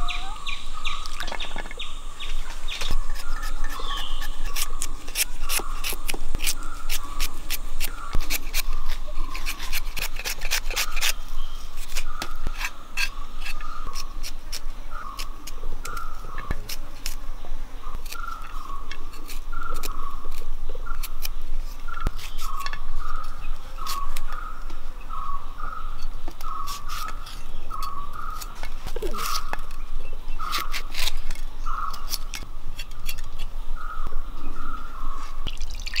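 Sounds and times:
knife slicing garlic: 2.8s - 11.1s.

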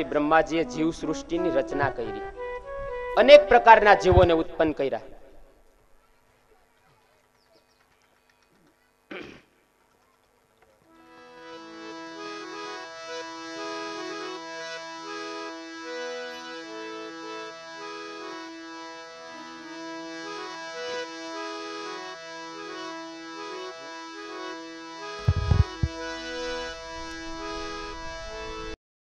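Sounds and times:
harmonium melody with drone: 0.0s - 9.0s, 9.6s - 28.8s
loud low thump: 4.1s - 4.4s, 25.2s - 26.0s.

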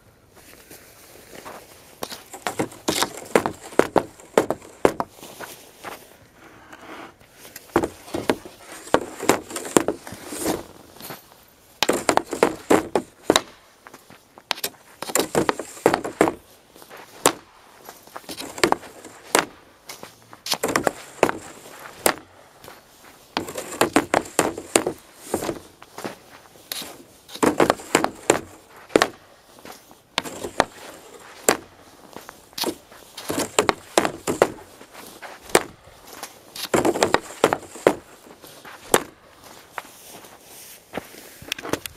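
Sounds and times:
hockey stick shots cracking on ice: 2.0s - 5.1s, 7.6s - 10.7s, 11.8s - 13.6s, 14.4s - 17.5s, 18.2s - 22.8s, 23.4s - 39.2s.

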